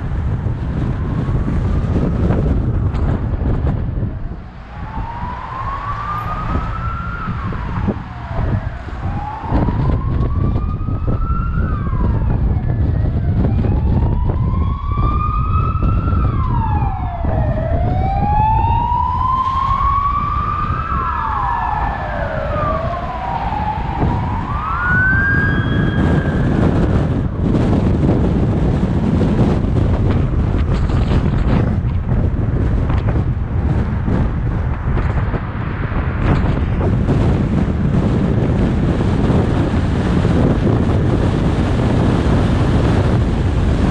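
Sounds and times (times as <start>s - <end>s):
road and wind noise: 0.0s - 43.9s
siren wailing: 4.0s - 28.8s.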